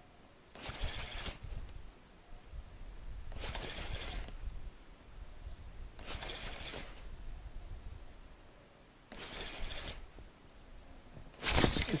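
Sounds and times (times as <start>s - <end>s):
spinning reel cranking: 0.6s - 1.5s, 3.4s - 4.4s, 6.0s - 7.0s, 9.1s - 10.1s.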